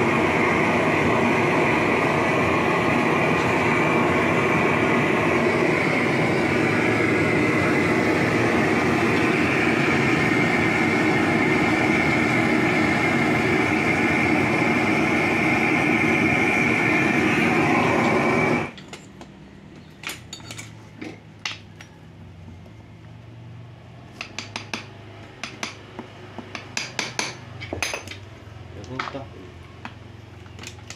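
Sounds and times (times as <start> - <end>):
gas torch burning: 0.0 - 30.9
tools clinking on metal mould: 18.8 - 22.0.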